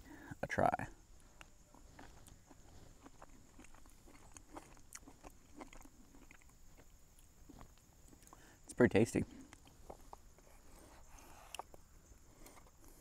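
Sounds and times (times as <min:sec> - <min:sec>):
person chewing: 0:01.2 - 0:08.4, 0:09.4 - 0:11.8.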